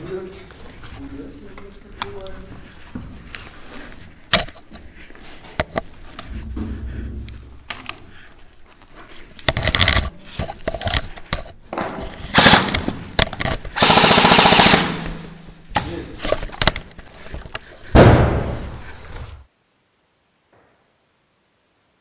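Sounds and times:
airsoft gun firing: 0:12.3 - 0:13.0, 0:13.8 - 0:15.3.

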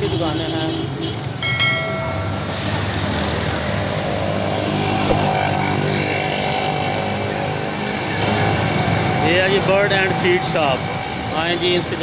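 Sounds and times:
sharp clicks: 0:01.1 - 0:01.4.

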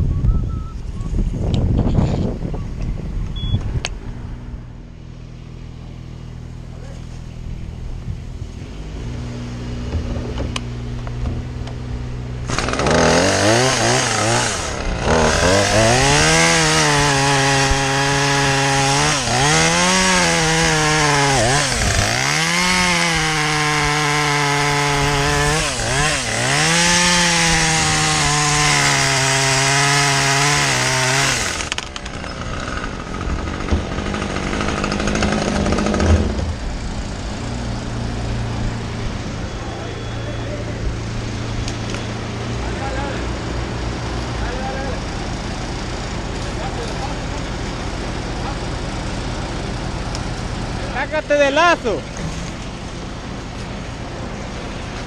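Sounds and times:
chainsaw engine idling: 0:12.2 - 0:38.8, 0:39.4 - 0:55.0
chainsaw cutting at full throttle: 0:12.4 - 0:40.2.

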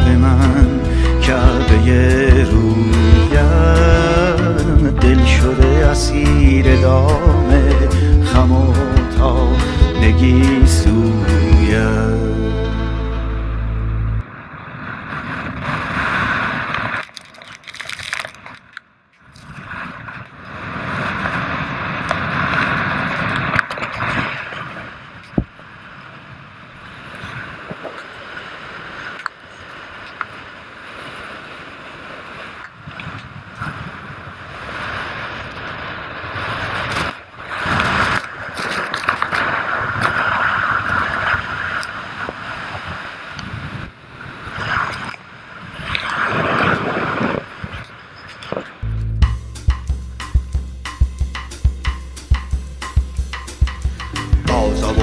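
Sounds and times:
wind buffeting microphone: 0:19.4 - 0:50.8.

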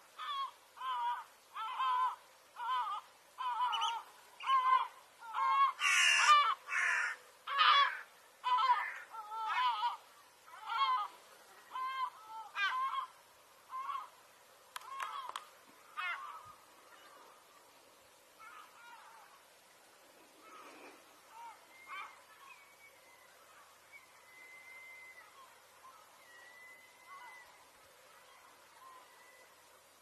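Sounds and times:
gulls calling harshly: 0:00.2 - 0:14.2.

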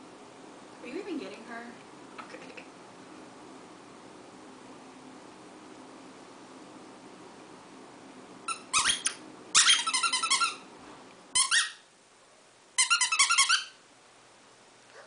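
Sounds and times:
dog toy squeaking: 0:08.5 - 0:10.6, 0:11.4 - 0:11.8, 0:12.8 - 0:13.8.

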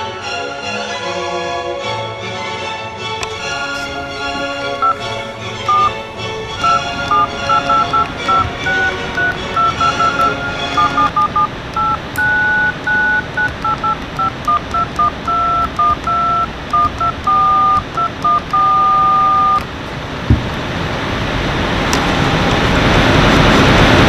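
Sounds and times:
music: 0:00.0 - 0:11.9
faint steady rush: 0:03.2 - 0:24.0
phone keypad dialing beeps: 0:04.8 - 0:05.1, 0:05.7 - 0:06.0, 0:06.6 - 0:19.7.

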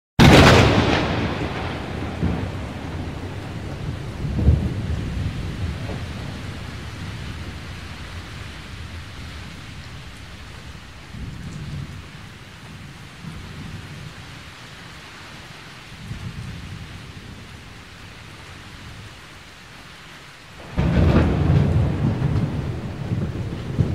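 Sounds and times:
thunder rolling: 0:00.2 - 0:14.1, 0:20.6 - 0:23.9
steady rain: 0:00.2 - 0:23.9.

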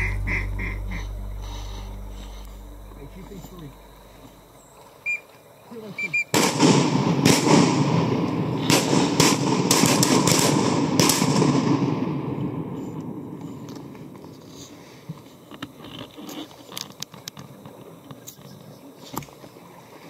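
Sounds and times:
shotgun blasts: 0:06.3 - 0:12.4.

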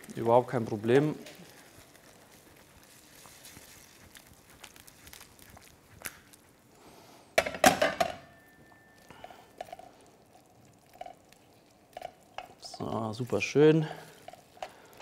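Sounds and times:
faint steady high tone: 0:08.2 - 0:09.4.

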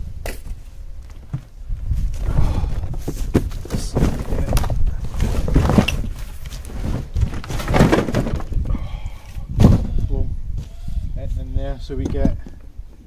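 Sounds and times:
cardboard scraping and rustling: 0:01.3 - 0:08.7
dull thumps: 0:02.4 - 0:08.8, 0:09.5 - 0:10.2.

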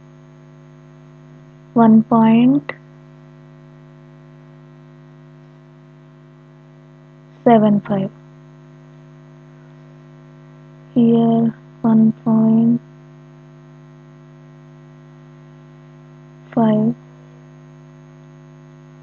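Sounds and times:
electrical mains hum: 0:00.0 - 0:19.0
person speaking: 0:01.8 - 0:02.7, 0:07.5 - 0:08.1, 0:11.0 - 0:12.8, 0:16.6 - 0:17.0.

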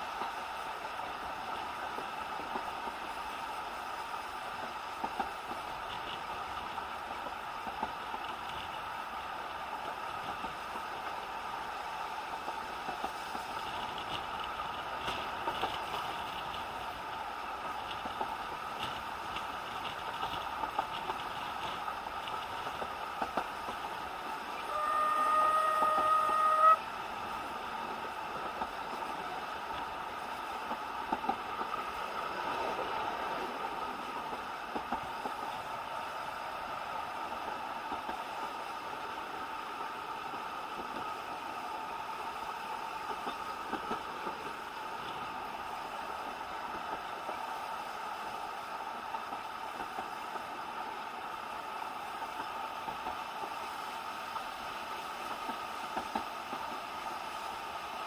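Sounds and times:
train rumble and wheel clicks: 0:00.0 - 0:58.0
steam locomotive whistle: 0:24.5 - 0:27.0.

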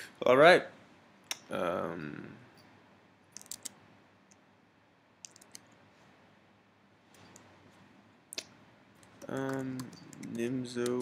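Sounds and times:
faint room hiss: 0:00.0 - 0:11.0
computer mouse clicks: 0:03.3 - 0:04.4, 0:05.2 - 0:05.8, 0:08.3 - 0:11.0.

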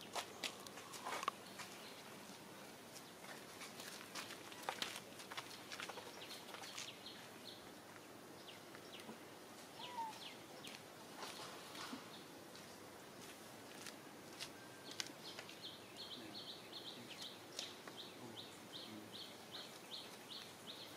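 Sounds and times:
birds chirping: 0:04.2 - 0:13.3, 0:14.5 - 0:20.9.

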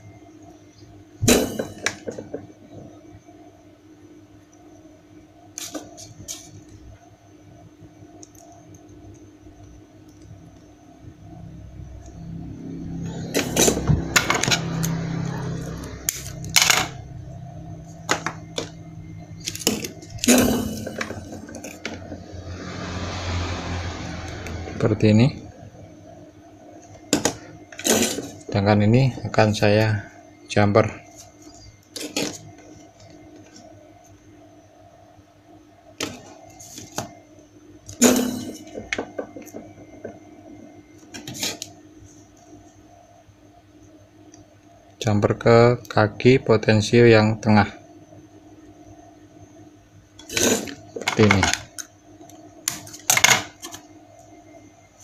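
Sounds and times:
low steady hum: 0:00.0 - 0:55.0.

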